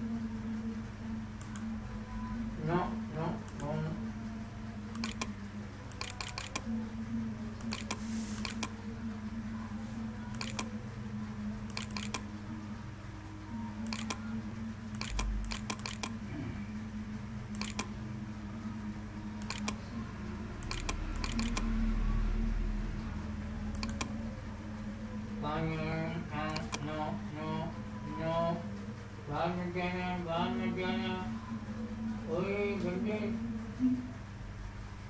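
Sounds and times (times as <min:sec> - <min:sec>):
low hum: 0:00.0 - 0:35.0
computer mouse clicking: 0:01.4 - 0:01.7, 0:04.9 - 0:05.3, 0:05.9 - 0:06.7, 0:07.6 - 0:08.8, 0:10.3 - 0:10.7, 0:11.7 - 0:12.2, 0:13.8 - 0:14.2, 0:14.9 - 0:16.2, 0:17.5 - 0:17.9, 0:19.4 - 0:19.8, 0:20.6 - 0:21.7, 0:23.7 - 0:24.2, 0:26.5 - 0:26.8.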